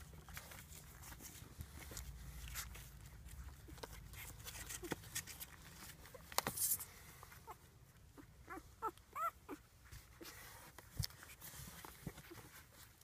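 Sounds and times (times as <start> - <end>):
puppies squeaking: 7.4 - 10.3.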